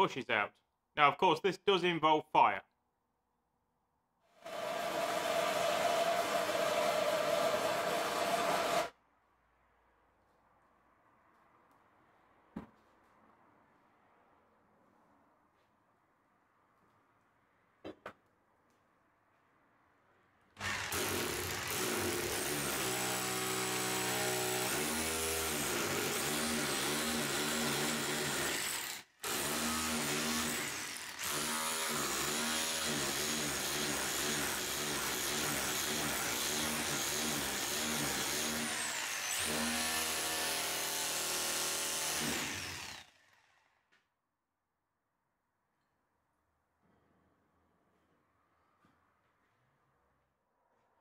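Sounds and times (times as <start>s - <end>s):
cordless drill running under load: 4.5s - 8.9s, 20.6s - 43.8s.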